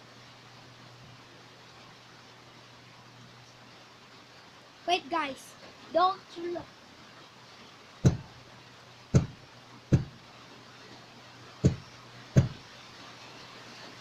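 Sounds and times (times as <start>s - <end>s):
dull knocks of fidget spinner: 8.0s - 8.4s, 9.1s - 10.2s, 11.6s - 12.7s.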